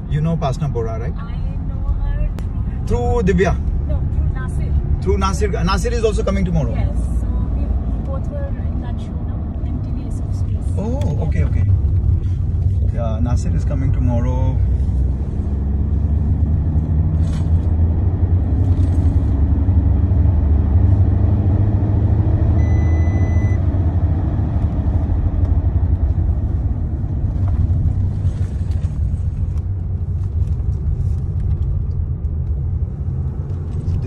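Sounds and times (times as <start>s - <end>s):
car engine and tyre rumble: 0.0s - 34.0s
short steady beep: 22.6s - 23.6s.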